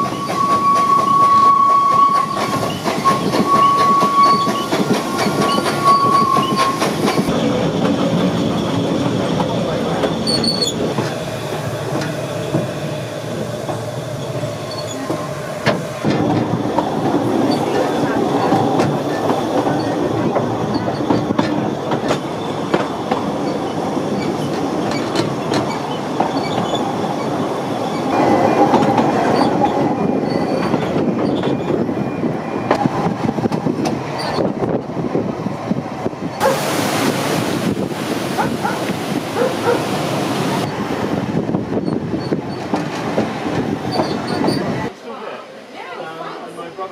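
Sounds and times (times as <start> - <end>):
train wheels rumbling: 0.0 - 44.9
waterfall stream rushing: 36.4 - 40.6.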